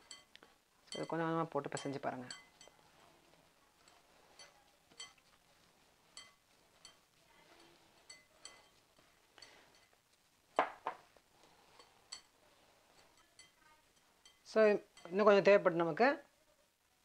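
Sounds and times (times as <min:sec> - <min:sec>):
clinks against glass bowl: 0:00.0 - 0:02.8, 0:03.9 - 0:05.4, 0:06.1 - 0:10.0, 0:11.7 - 0:12.4, 0:13.0 - 0:15.2.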